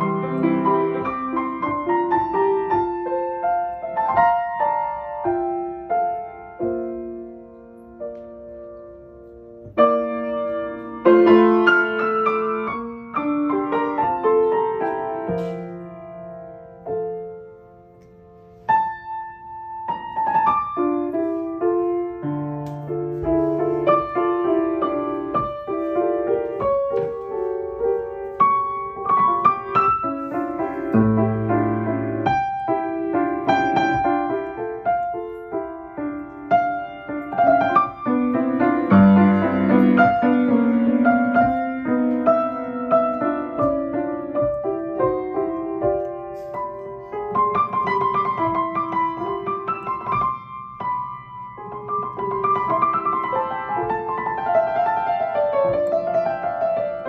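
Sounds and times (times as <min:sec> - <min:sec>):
solo grand piano: 0:00.0 - 0:57.0.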